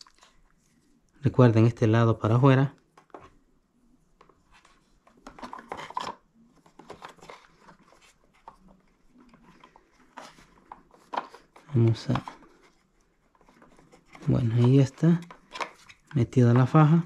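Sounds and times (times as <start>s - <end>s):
small clicks and rubbing: 4.2s - 16.2s.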